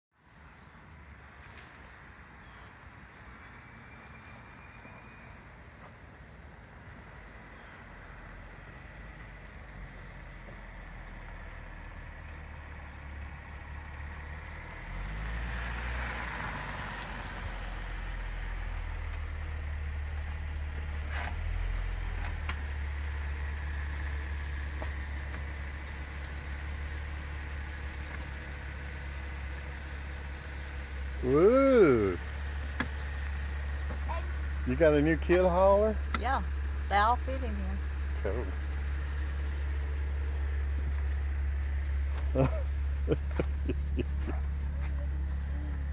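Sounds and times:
car engine: 0.3 - 45.9.

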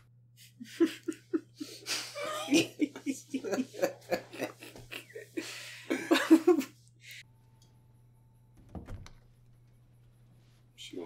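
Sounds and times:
man laughing: 0.4 - 6.7.

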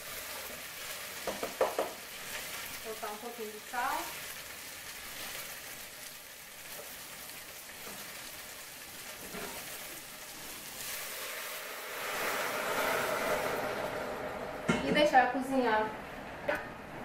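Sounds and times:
cauliflower sizzling in a pan: 0.0 - 16.3.

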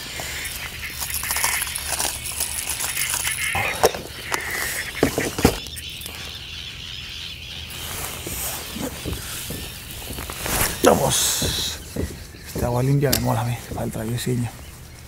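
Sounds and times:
plastic box rustling and rattling: 1.0 - 5.6.

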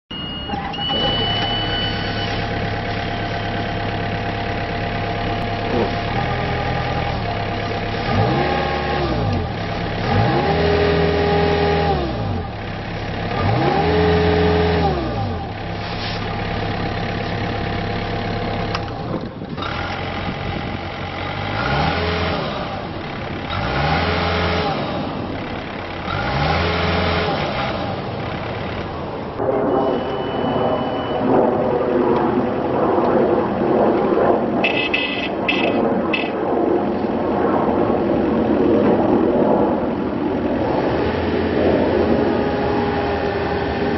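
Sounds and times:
high beep: 0.1 - 3.7, 29.5 - 31.4
diesel engine idling and revving: 0.1 - 43.9.

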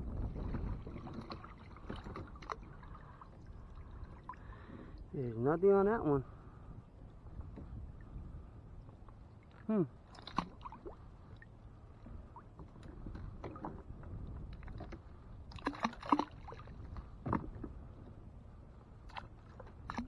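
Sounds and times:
water sloshing and splashing: 0.0 - 5.1, 8.8 - 18.2, 19.0 - 20.0.

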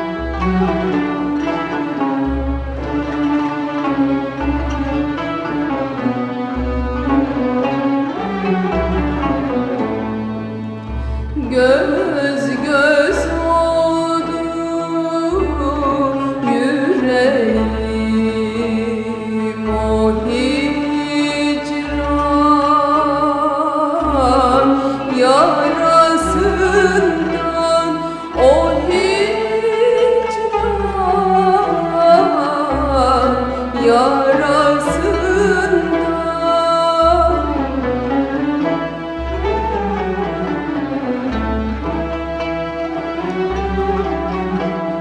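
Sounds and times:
bowed strings: 0.0 - 45.0
woman singing: 11.4 - 38.4.

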